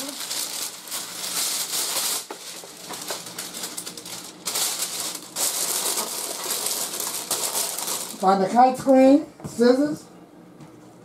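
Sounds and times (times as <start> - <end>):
parchment paper crinkling: 0.0 - 8.8.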